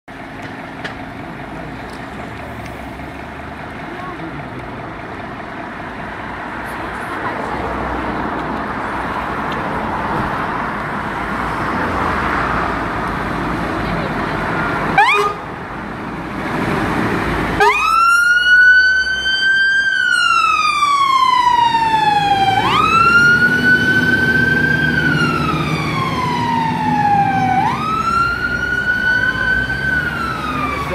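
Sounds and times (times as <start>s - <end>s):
fire engine running: 0.1s - 30.9s
siren chirp: 15.0s - 15.4s, 17.6s - 30.9s
siren wailing: 15.0s - 15.4s, 17.6s - 30.9s.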